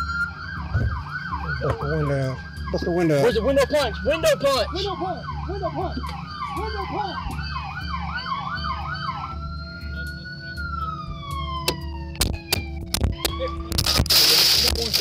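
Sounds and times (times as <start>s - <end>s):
police siren fast warbling yelp: 0.0s - 14.2s
low vehicle rumble: 0.0s - 15.0s
police siren slow wail: 0.0s - 15.0s.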